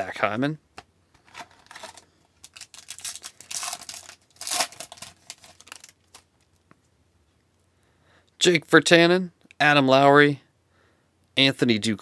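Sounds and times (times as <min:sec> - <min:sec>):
foil wrapper tearing and crinkling: 0:01.2 - 0:06.5.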